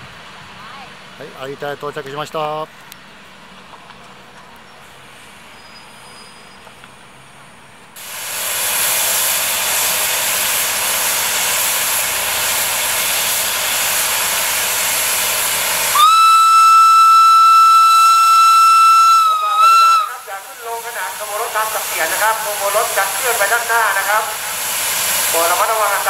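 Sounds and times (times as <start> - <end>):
locomotive letting off steam: 4.5 - 26.0
shrill steam whistle: 8.0 - 20.3.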